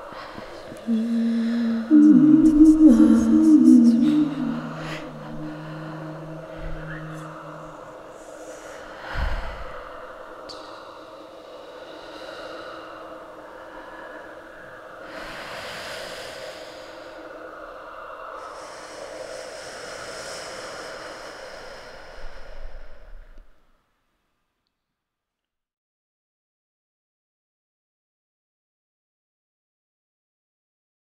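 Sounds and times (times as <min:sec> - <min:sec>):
sustained drones: 0:00.0 - 0:15.7
breathy hissing texture: 0:00.0 - 0:23.4.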